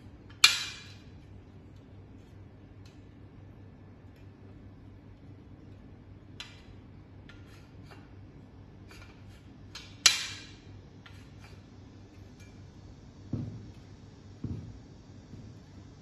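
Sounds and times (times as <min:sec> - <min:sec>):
bracket knocking on wooden table: 0:13.3 - 0:13.6.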